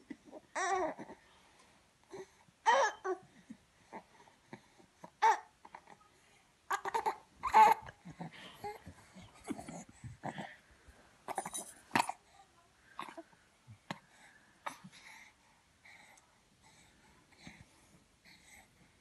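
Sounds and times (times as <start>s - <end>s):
infant babbling and cooing: 0.2s - 1.2s, 5.2s - 10.5s.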